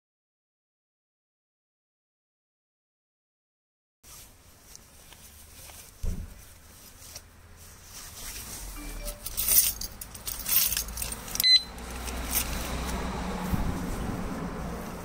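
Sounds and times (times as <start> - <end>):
gloved hands rustling: 4.0 - 15.0
thump: 6.0 - 6.4.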